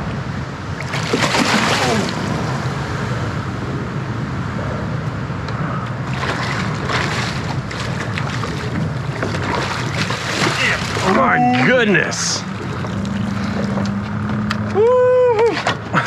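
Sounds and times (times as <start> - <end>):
wind rumble: 0.0 - 16.0
water lapping: 0.7 - 2.9, 6.0 - 14.5
fish thrashing and splashing: 0.8 - 2.6, 6.0 - 14.4.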